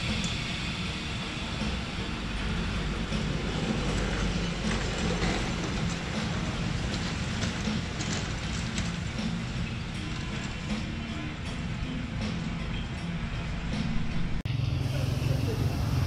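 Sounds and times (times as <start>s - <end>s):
hydraulic car lift rumbling: 0.0s - 16.0s
lift clicks and clacks: 3.1s - 11.1s.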